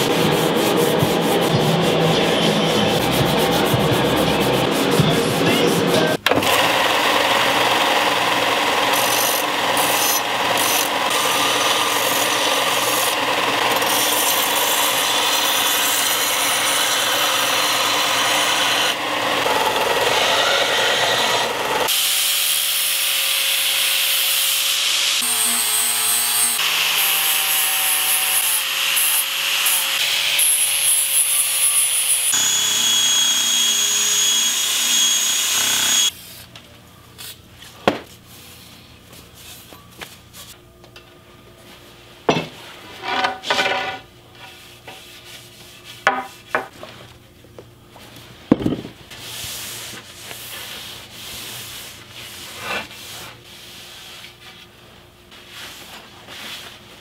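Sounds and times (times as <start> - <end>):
angle grinder whining: 6.4 - 36.2
belt grinder grinding steel: 6.6 - 36.1.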